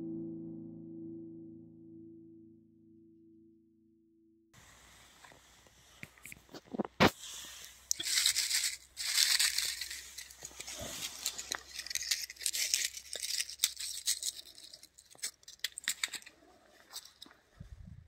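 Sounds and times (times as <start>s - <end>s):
dry leaves rustling and crackling: 7.1s - 16.1s.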